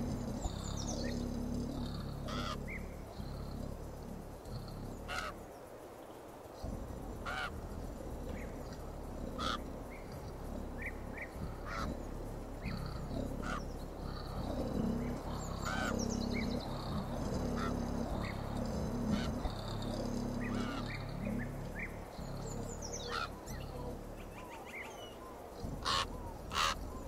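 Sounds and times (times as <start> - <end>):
birds honking: 0.0 - 3.1, 4.8 - 5.4, 7.1 - 27.0
low steady hum: 0.0 - 27.0
birds short sharp calls: 12.6 - 18.4, 19.0 - 27.0.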